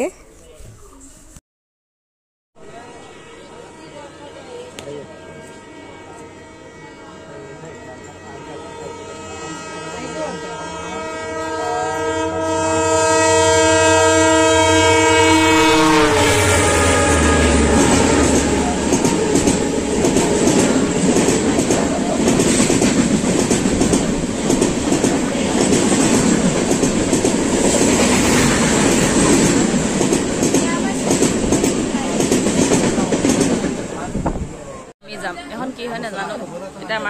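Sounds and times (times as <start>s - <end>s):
locomotive horn blaring: 2.7s - 22.3s
train wheels clattering on rails: 17.6s - 34.5s.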